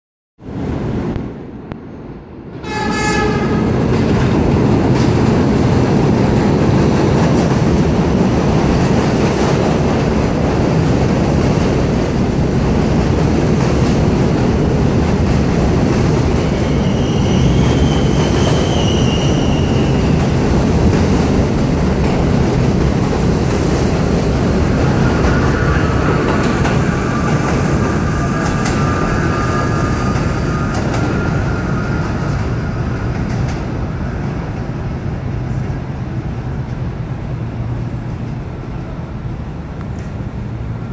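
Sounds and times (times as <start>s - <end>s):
train horn blast: 2.6s - 3.7s
high squeal: 16.4s - 20.4s, 24.8s - 33.1s.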